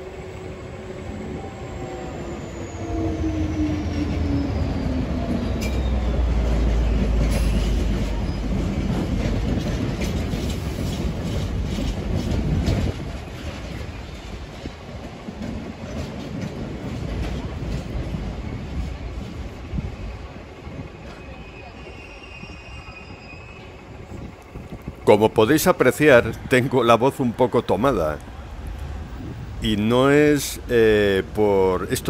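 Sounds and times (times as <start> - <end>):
freight wagons rumbling: 0.0 - 32.0
locomotive passing: 0.0 - 32.0
train wheels clattering: 3.3 - 21.3.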